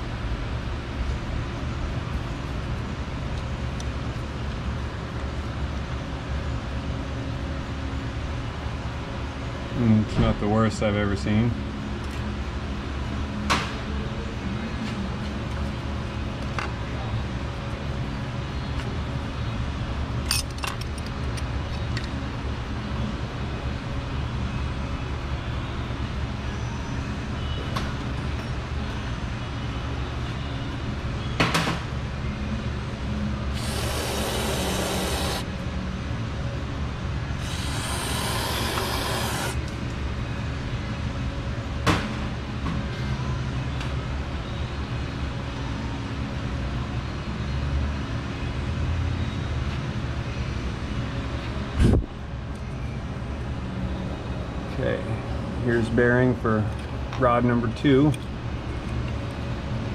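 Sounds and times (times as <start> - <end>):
steady low hum: 31.9 - 42.6
hissing sprays: 33.6 - 35.5, 37.4 - 39.6.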